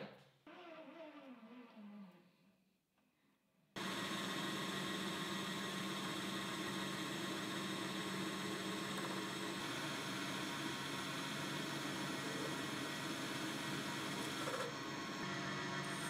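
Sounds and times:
metal lathe running: 3.8s - 16.0s.

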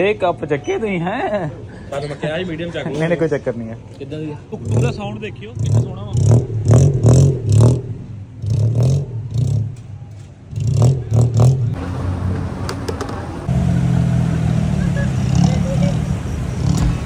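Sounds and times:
engine revving with loud exhaust: 4.5s - 17.0s.

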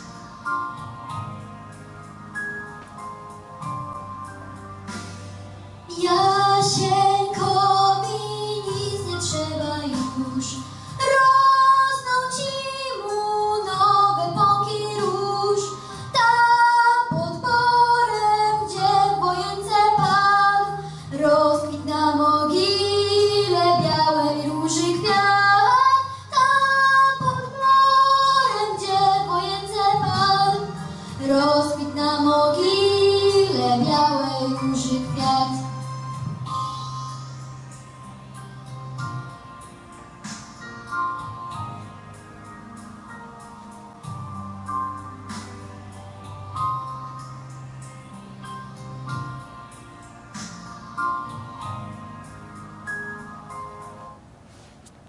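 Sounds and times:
instrumental accompaniment: 0.0s - 55.0s
girl singing into microphone: 5.9s - 36.2s.

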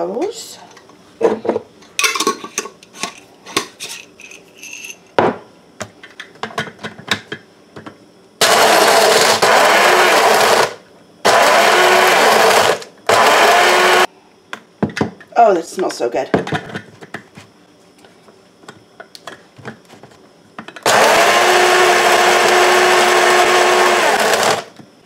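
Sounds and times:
electric blade grinder running: 8.4s - 14.1s, 20.8s - 24.7s.

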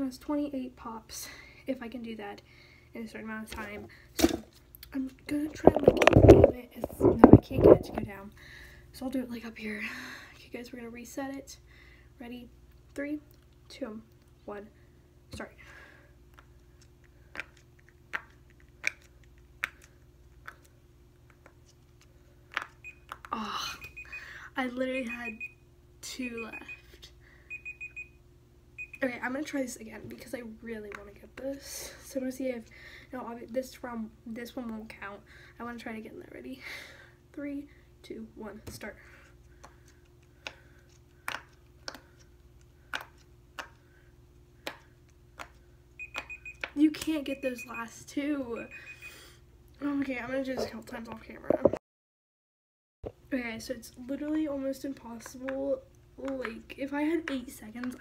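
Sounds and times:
fidget toy bubbles popping: 5.6s - 7.9s.

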